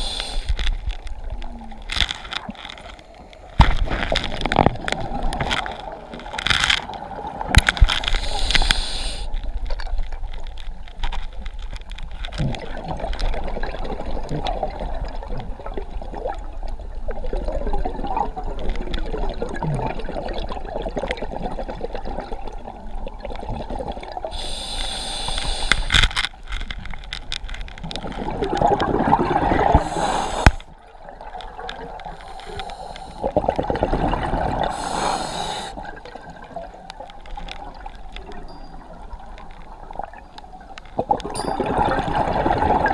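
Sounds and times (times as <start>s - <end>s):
regulator inhalation hiss: 0.0s - 0.6s, 8.1s - 9.4s, 24.3s - 26.0s, 29.8s - 30.7s, 32.2s - 33.3s, 34.7s - 35.9s
gurgling bubbles: 12.3s - 24.4s, 27.8s - 32.2s, 33.2s - 38.5s, 40.9s - 42.9s.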